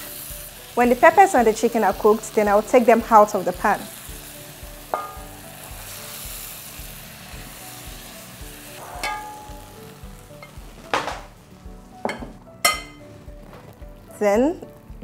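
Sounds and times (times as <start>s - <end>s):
food sizzling in a frying pan: 0.0s - 15.0s
spatula knocking on pan: 4.9s - 5.4s, 8.8s - 11.4s, 12.0s - 13.0s.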